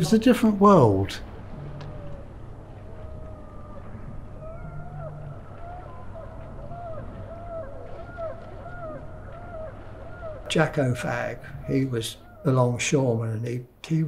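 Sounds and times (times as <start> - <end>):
low steady rumble: 0.0 - 10.7
gulls calling: 0.0 - 14.0.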